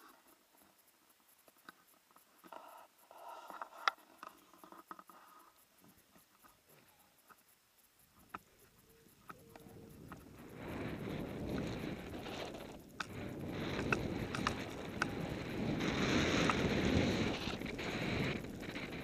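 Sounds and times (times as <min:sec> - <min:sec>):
skis hissing through snow: 0:10.6 - 0:19.0.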